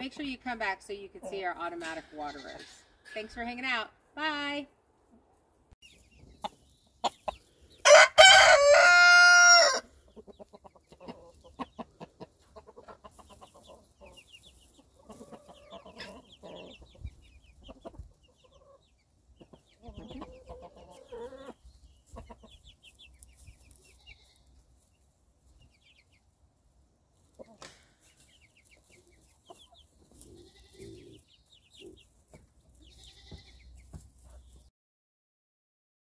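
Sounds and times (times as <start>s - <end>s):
rooster crowing: 7.8s - 9.9s
hens clucking softly: 10.0s - 23.8s.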